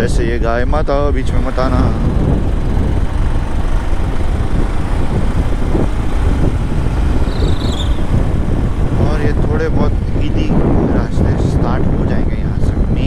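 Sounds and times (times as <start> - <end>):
motorcycle engine and tyres drone: 0.0 - 13.0
wind buffeting microphone: 0.0 - 13.0.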